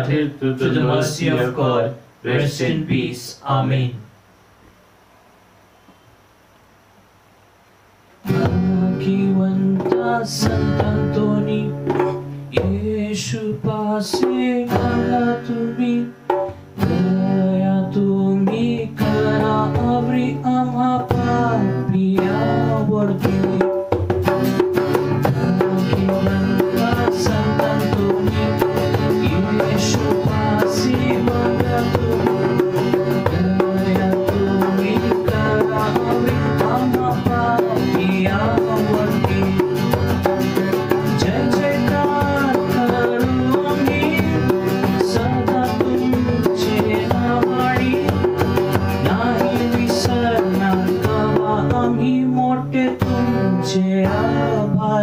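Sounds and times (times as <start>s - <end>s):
tabla drumming: 9.6s - 13.3s, 14.0s - 15.5s, 16.3s - 16.6s, 22.0s - 53.4s.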